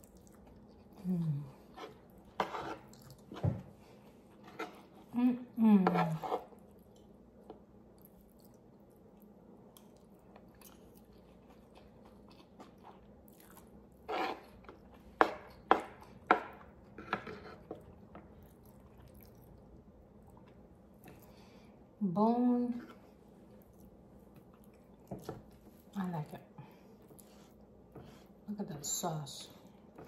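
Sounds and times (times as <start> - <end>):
person chewing food: 0.0 - 3.4, 6.4 - 21.4, 22.9 - 26.0.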